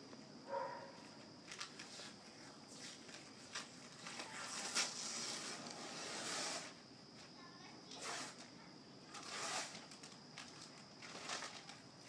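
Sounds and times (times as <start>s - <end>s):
paper peeling and tearing: 4.0s - 6.7s, 9.1s - 11.8s.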